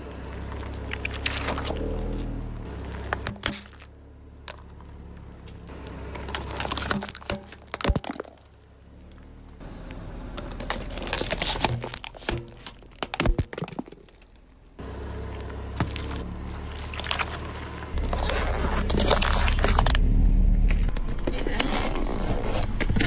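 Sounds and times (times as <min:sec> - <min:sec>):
plastic bottles and cans crushing: 0:06.2 - 0:08.6, 0:10.5 - 0:14.5, 0:18.0 - 0:20.0.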